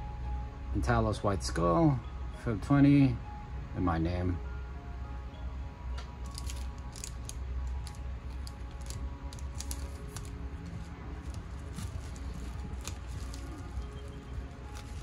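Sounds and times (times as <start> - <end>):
low hum: 0.0 - 15.0
packaging clicks and taps: 6.3 - 15.0.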